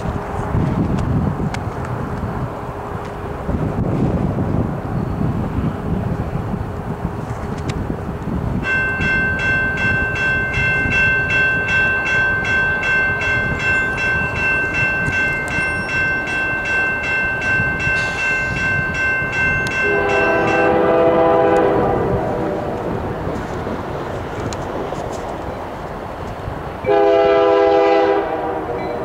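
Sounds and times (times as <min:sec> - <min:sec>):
train rumbling: 0:00.0 - 0:29.0
locomotive air horn: 0:19.8 - 0:22.9, 0:26.9 - 0:29.0.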